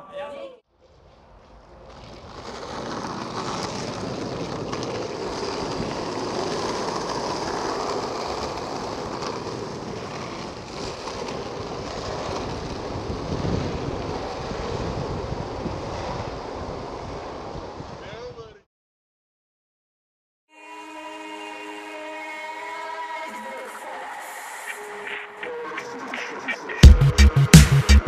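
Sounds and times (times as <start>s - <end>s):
skateboard wheels rolling on asphalt: 0.1s - 18.6s.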